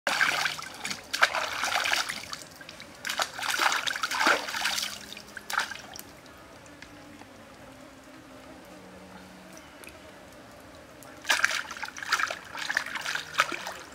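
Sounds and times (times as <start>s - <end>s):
hands splashing water: 0.1s - 6.1s, 11.2s - 13.9s.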